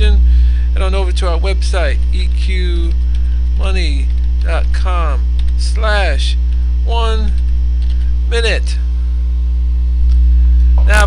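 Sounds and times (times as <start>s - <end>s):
man speaking: 0.0s - 3.0s, 3.6s - 7.4s, 8.3s - 8.9s, 10.8s - 11.0s
electrical mains hum: 0.0s - 11.0s.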